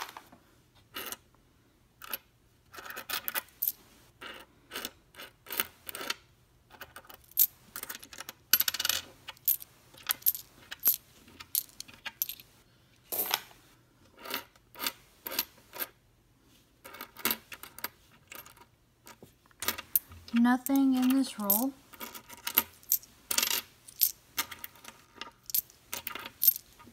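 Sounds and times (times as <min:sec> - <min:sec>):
coins clinking on wooden table: 0:02.0 - 0:12.5, 0:13.1 - 0:13.5, 0:16.8 - 0:26.9
coins clattering: 0:06.8 - 0:12.5, 0:19.6 - 0:26.9.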